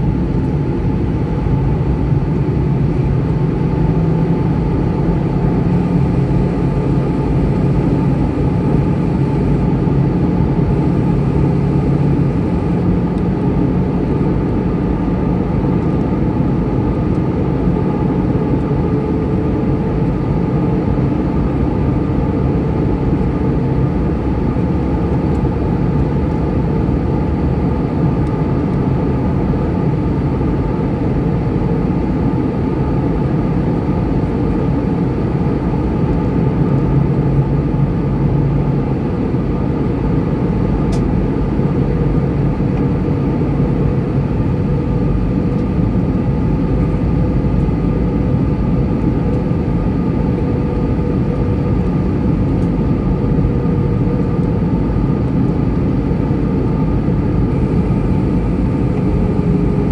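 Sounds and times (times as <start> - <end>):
steady hums: 0.0 - 19.7, 39.3 - 59.9
jet engine drone: 0.0 - 59.9.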